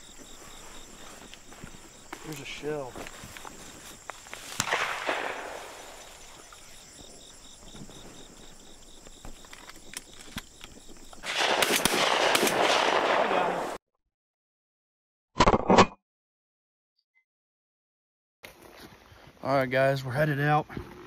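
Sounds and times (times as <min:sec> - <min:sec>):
shotgun shot: 0:04.6 - 0:06.0, 0:11.2 - 0:13.8.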